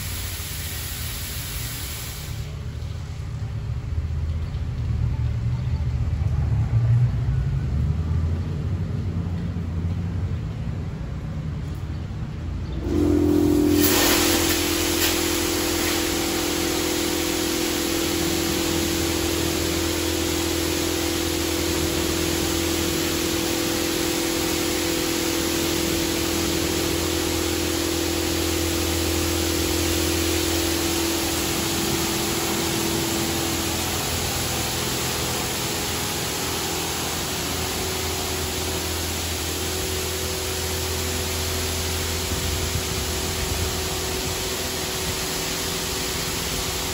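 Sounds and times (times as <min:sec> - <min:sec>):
high-pressure water spray hiss: 0:00.0 - 0:02.9, 0:12.8 - 0:46.9
car wash machine hum: 0:00.0 - 0:46.9.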